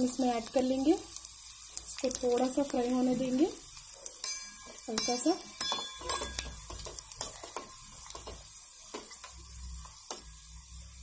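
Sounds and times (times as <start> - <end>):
spices sizzling in hot oil: 0.0 - 11.0
ladle stirring in steel pan: 3.8 - 10.3.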